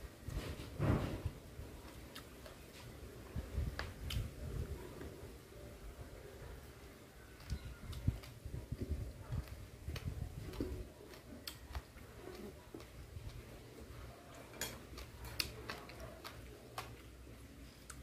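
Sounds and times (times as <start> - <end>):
person chewing: 1.8 - 2.9, 7.4 - 18.0
mouth clicks and smacks: 7.4 - 13.5.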